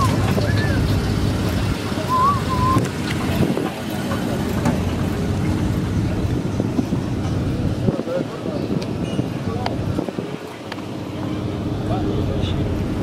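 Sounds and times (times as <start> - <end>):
wind buffeting microphone: 0.0 - 12.0
car engines idling: 0.0 - 13.0
whistle-like chirp: 2.1 - 2.9.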